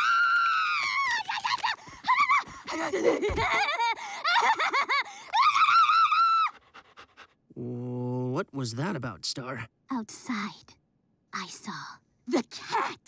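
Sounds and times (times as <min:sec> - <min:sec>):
cartoon dog yelping and howling: 0:05.4 - 0:06.7.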